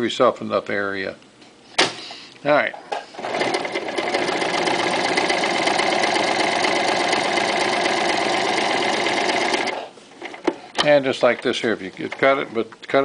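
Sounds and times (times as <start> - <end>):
sewing machine stitching: 3.2 - 10.5.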